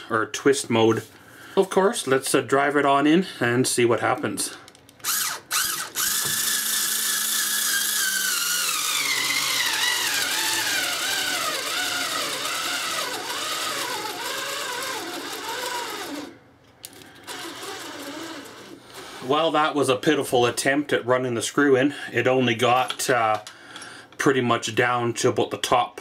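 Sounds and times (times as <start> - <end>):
cordless screwdriver whining: 5.0 - 19.3.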